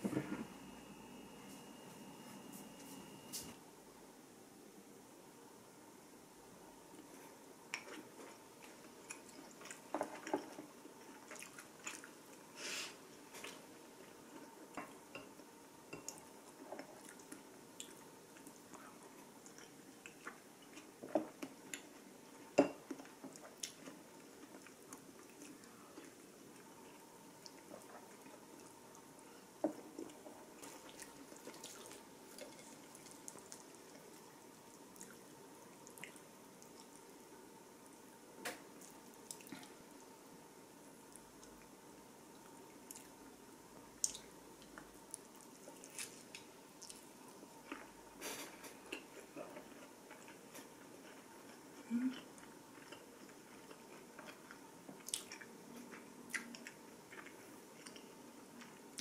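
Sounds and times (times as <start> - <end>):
faint steady hum: 0.0 - 59.0
short hiss: 12.6 - 13.0.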